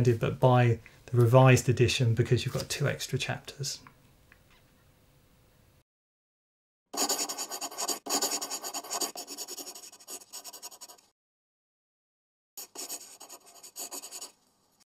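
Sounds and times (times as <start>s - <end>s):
pen scratching while drawing: 7.0s - 11.1s, 12.6s - 14.4s.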